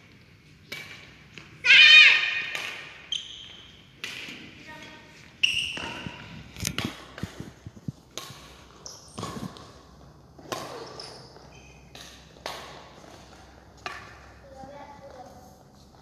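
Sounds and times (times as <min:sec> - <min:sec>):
racket striking shuttlecock: 0:00.6 - 0:04.9, 0:05.5 - 0:14.4
shoe squeaks on court: 0:03.0 - 0:03.9, 0:05.4 - 0:06.3, 0:08.8 - 0:09.5, 0:10.7 - 0:12.0.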